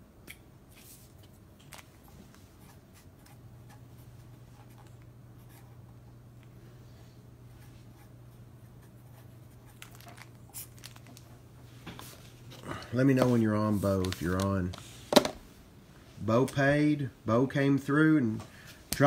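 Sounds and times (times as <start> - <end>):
steady low hum: 0.0 - 19.0
faint scratchy rustling: 9.7 - 15.1.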